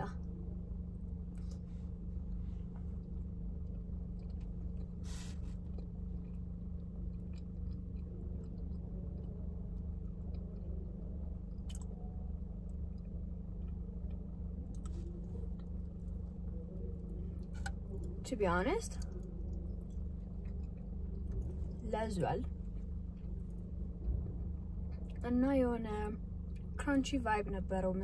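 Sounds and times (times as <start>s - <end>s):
steady low hum: 0.0s - 28.0s
person chewing: 3.0s - 10.8s.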